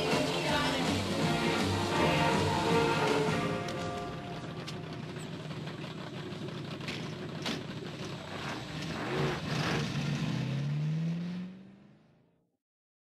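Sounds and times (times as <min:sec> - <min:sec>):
car engine revving: 0:00.0 - 0:12.4.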